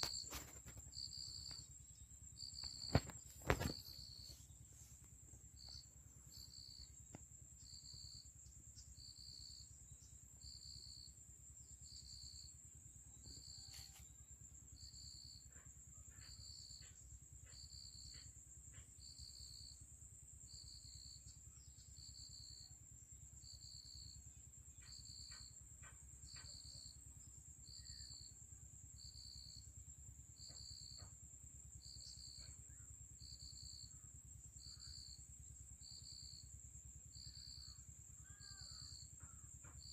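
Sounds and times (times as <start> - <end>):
insect trilling: 0.0 - 1.8, 2.4 - 4.5, 37.1 - 39.9
insect chirping: 0.0 - 39.9.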